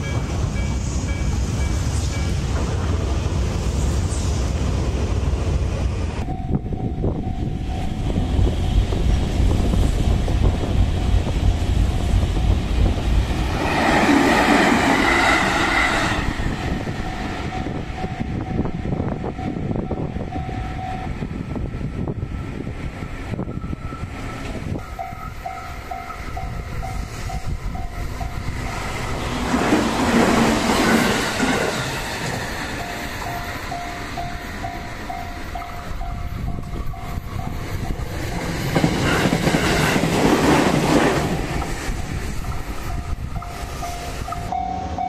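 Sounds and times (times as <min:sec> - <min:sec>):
crossing warning bell: 0:00.0 - 0:02.4, 0:06.2 - 0:09.5, 0:10.7 - 0:13.0, 0:16.4 - 0:21.6, 0:23.4 - 0:29.1, 0:30.7 - 0:38.5, 0:42.5 - 0:45.0
train rumbling past: 0:00.0 - 0:45.0.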